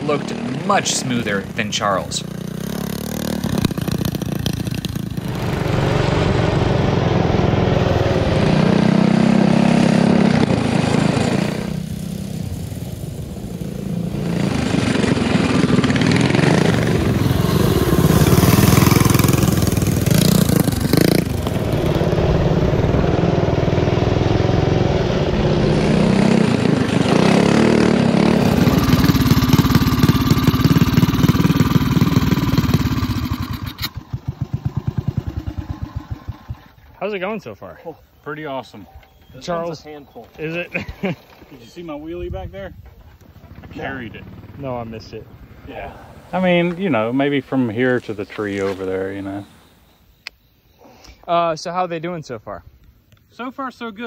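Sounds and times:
mini bike engine running: 0.3s - 36.9s.

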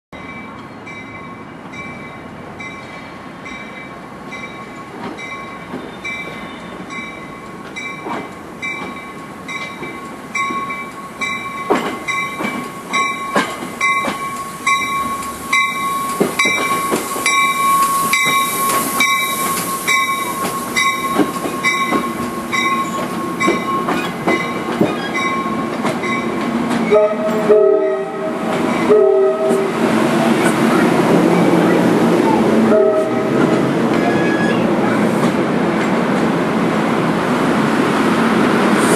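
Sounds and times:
train bell ringing: 0.2s - 29.2s
train wheels clicking over rail joints: 2.6s - 27.5s, 28.4s - 31.6s, 33.3s - 36.4s.

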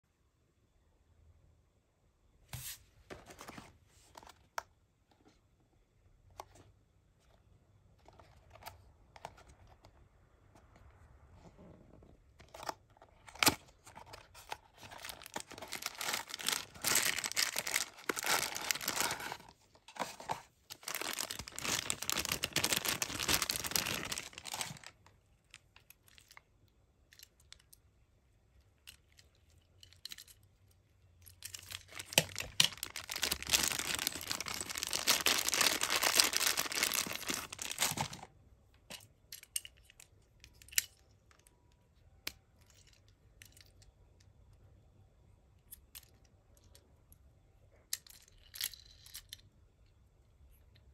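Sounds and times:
plastic bag crinkling and tearing: 13.2s - 26.4s, 31.4s - 38.3s.

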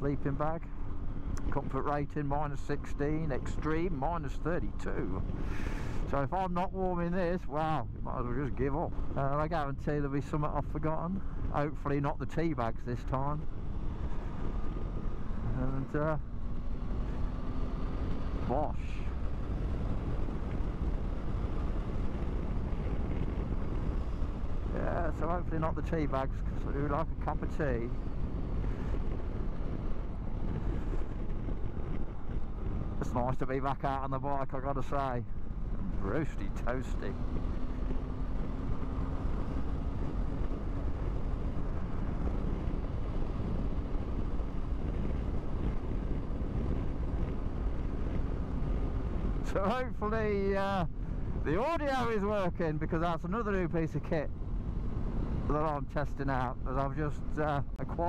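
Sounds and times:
wind and road noise: 0.0s - 58.0s
motorcycle engine cruising: 13.2s - 52.2s.

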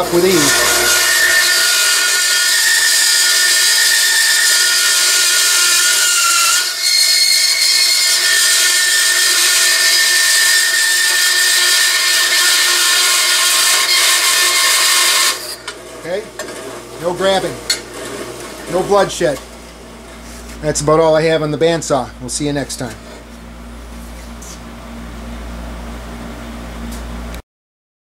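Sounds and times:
bandsaw cutting metal: 0.0s - 19.4s.

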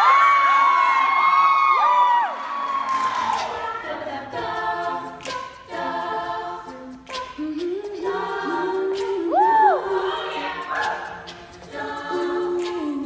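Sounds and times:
women singing a cappella: 2.7s - 13.0s.

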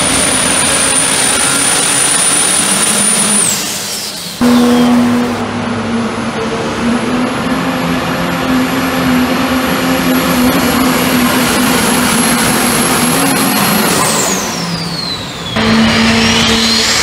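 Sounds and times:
diesel engine roaring: 0.0s - 17.0s
high-pitched turbo whistle: 0.4s - 5.4s, 14.1s - 17.0s.

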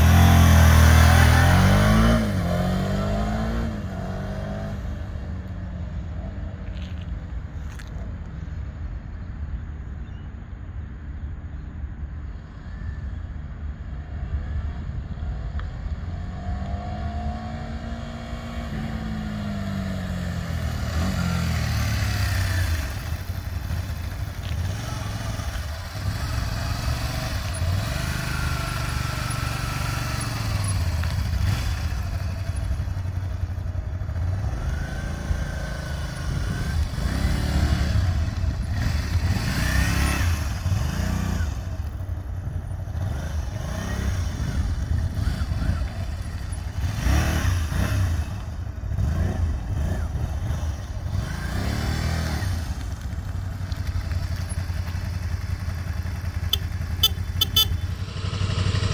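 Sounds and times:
motorcycle engine revving: 0.0s - 5.3s, 16.2s - 58.9s.

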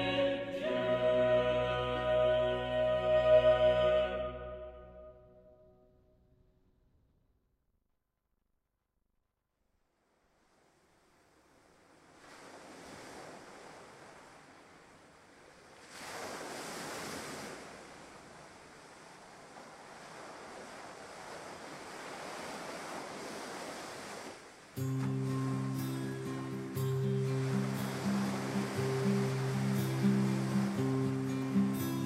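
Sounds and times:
wind gusting: 25.4s - 31.8s.

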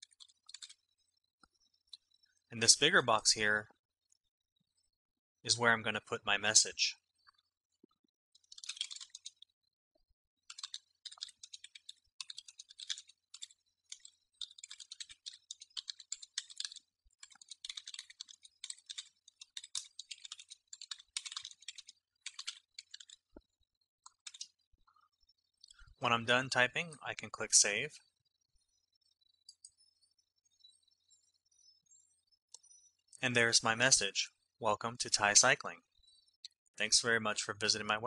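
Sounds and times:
faint fast keyboard typing: 0.0s - 2.3s, 6.4s - 9.7s, 10.4s - 26.0s, 28.2s - 31.3s.

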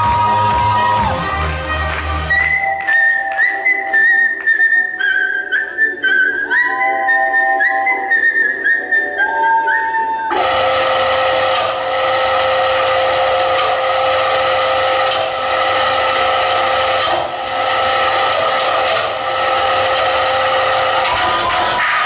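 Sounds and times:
music: 0.0s - 22.0s
machine-like hum with held tones: 10.3s - 22.0s.

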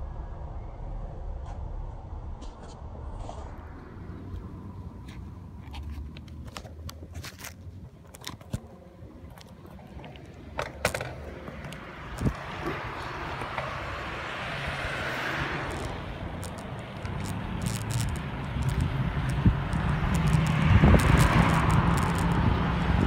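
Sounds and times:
passing car tyre noise: 0.0s - 23.0s
bicycle rolling on pavement: 3.1s - 23.0s
bike rattles and clicks: 4.4s - 14.0s, 15.4s - 23.0s.

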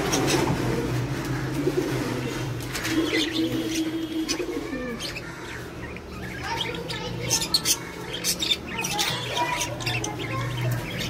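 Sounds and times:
budgerigars chirping and squawking: 0.0s - 11.0s.

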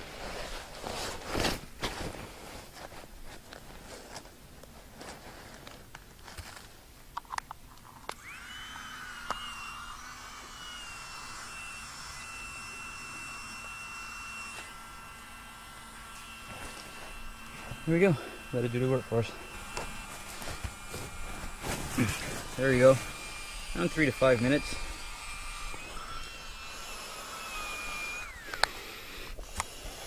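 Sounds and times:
nylon mattress rustling: 0.0s - 5.7s, 19.5s - 23.4s
small pump whining: 8.0s - 30.0s.

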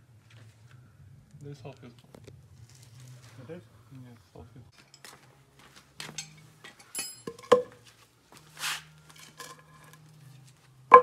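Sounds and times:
metal tools clinking and tapping: 4.8s - 5.2s, 6.0s - 7.8s, 9.1s - 10.2s.

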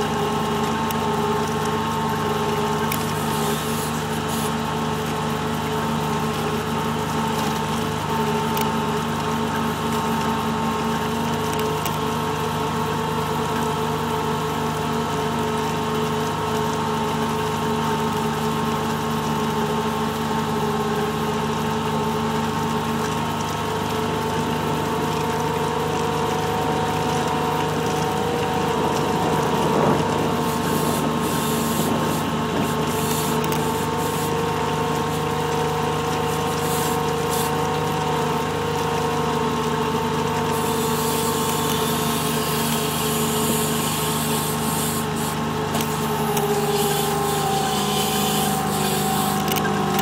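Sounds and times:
diesel engine running: 0.0s - 50.0s
vehicle driving through snow: 26.4s - 35.3s.

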